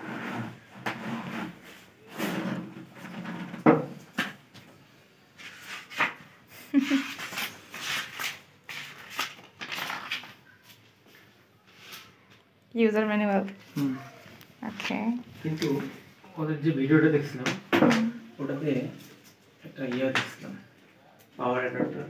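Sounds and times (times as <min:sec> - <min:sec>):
plastic sleeve rustling: 0:06.9 - 0:10.6
paper rustling: 0:06.9 - 0:10.9.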